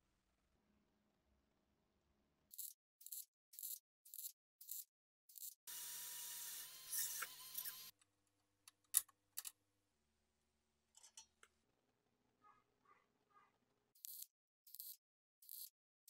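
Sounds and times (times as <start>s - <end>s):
small motorised tool running: 2.6s - 7.9s.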